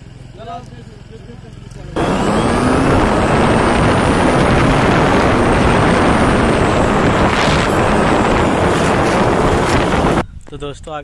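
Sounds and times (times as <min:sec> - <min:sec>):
motorcycle engine running: 0:00.9 - 0:10.2
wind buffeting microphone: 0:02.0 - 0:10.7.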